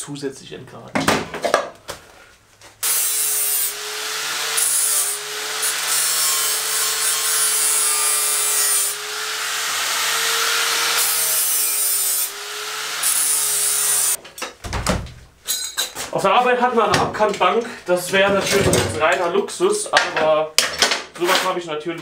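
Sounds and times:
angle grinder grinding metal: 2.8 - 14.2.

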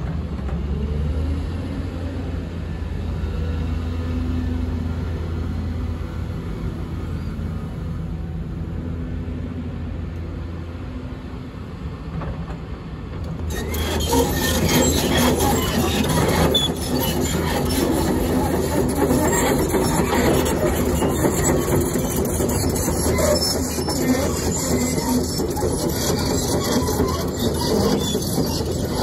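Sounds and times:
steel tracks clanking and squealing: 12.2 - 29.0
diesel engine humming: 13.2 - 29.0.

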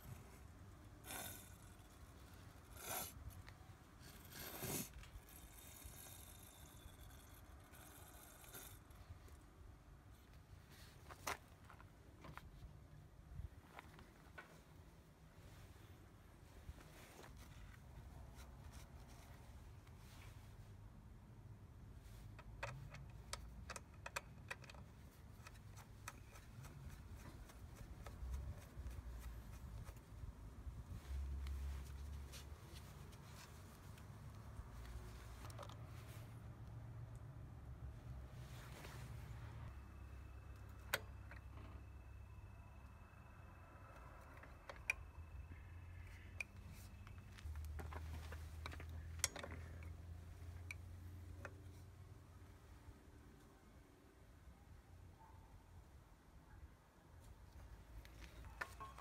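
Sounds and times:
bolt clicks and metal taps: 22.2 - 30.1, 46.1 - 51.8.

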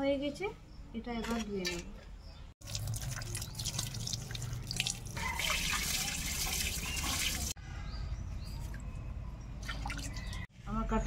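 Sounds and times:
water dripping: 2.6 - 7.6
water pouring into a plastic colander: 2.6 - 7.6.

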